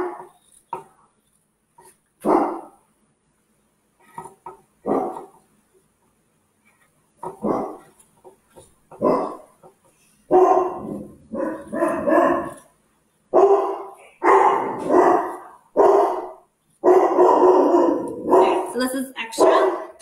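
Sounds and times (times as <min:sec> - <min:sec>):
dog barking: 0:00.0 - 0:00.3, 0:02.2 - 0:02.8, 0:04.8 - 0:05.3, 0:07.4 - 0:07.8, 0:09.0 - 0:09.5, 0:10.3 - 0:12.7, 0:13.3 - 0:18.7, 0:19.4 - 0:20.0.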